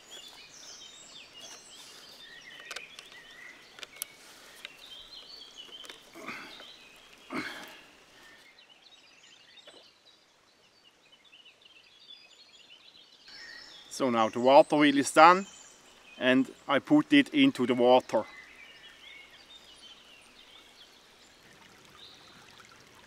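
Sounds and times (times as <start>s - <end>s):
forest stream rushing: 0.0s - 23.0s
small birds chirping: 0.0s - 23.0s
light clicks: 2.5s - 6.0s.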